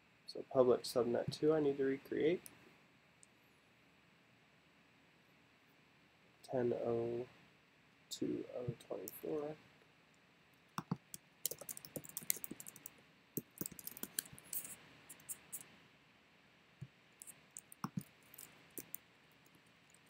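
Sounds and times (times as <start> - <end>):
key or mouse clicks: 10.8 - 15.6, 17.6 - 19.0
typing on computer keyboard: 10.8 - 15.6, 17.6 - 19.0.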